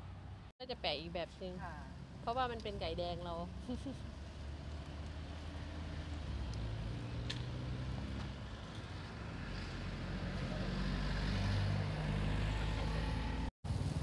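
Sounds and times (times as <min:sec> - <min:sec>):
traffic noise: 0:00.0 - 0:14.0
vehicle engine humming: 0:00.0 - 0:14.0.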